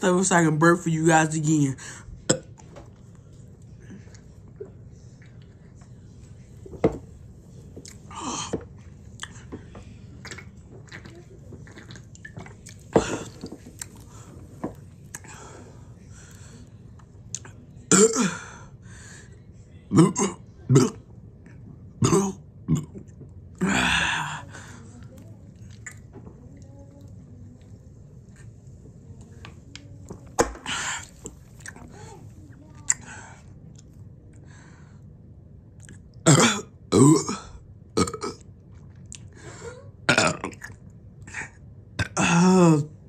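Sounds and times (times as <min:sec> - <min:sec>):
person gulping soda: 0:10.2 - 0:14.0.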